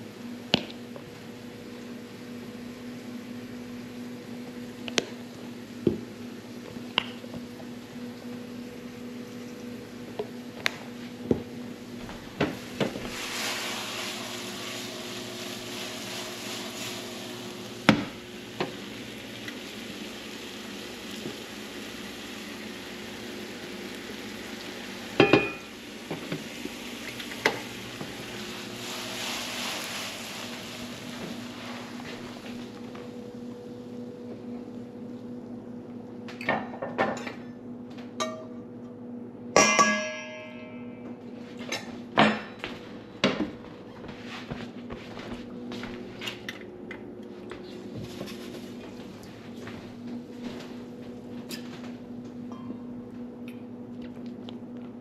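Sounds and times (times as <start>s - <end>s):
steady hum: 0.0s - 36.4s
food sizzling in frying pan: 1.0s - 33.8s
pan and utensils clattering: 12.3s - 18.9s, 25.2s - 26.5s, 39.6s - 40.8s, 41.6s - 43.4s.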